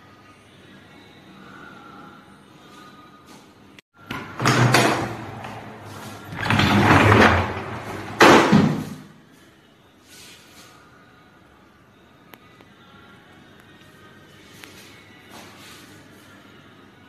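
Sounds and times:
sliding doors rolling on track: 0:04.1 - 0:09.0.

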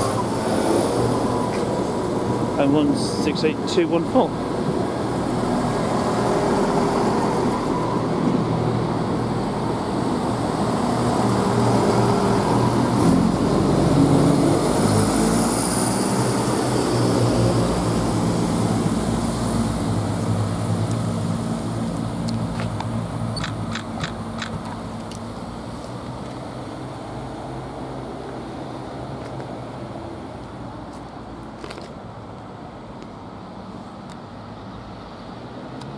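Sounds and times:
diesel train engines running: 0:00.0 - 0:34.7.

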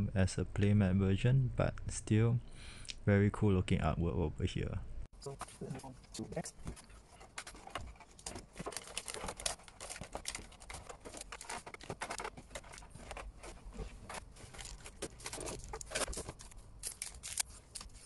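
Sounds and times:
foil packs crinkling: 0:08.0 - 0:18.0.

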